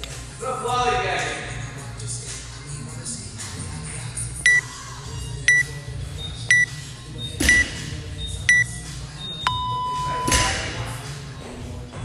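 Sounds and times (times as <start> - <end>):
short high beeps: 9.4 - 10.4.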